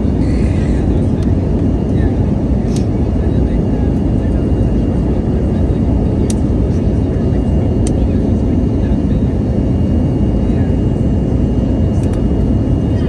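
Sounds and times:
airliner engines and airflow rumble: 0.0 - 13.0.

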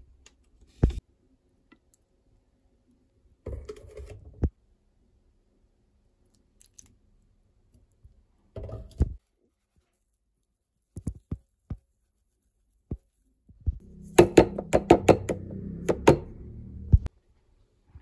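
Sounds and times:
low steady hum: 13.7 - 17.4.

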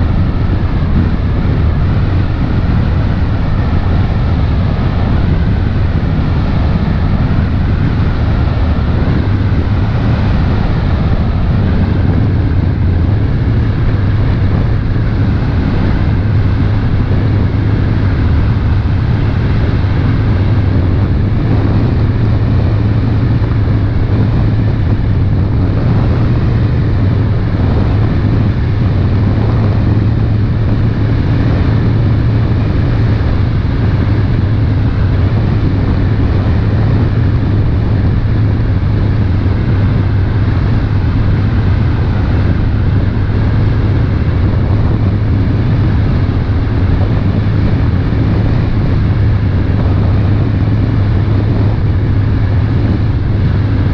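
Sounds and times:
boat engine humming: 0.0 - 53.9
wind and water rushing: 0.0 - 53.9.

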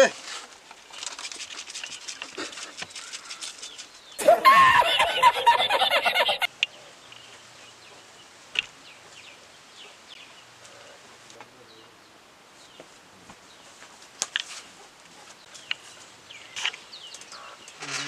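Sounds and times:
faint outdoor ambience: 0.0 - 18.0
man laughing in high-pitched gasps: 4.2 - 6.4.

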